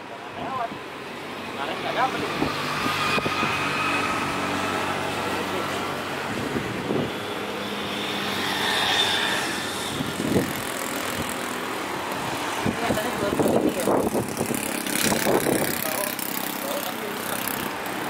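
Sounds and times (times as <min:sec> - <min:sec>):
jet engine whine: 0:05.8 - 0:10.4.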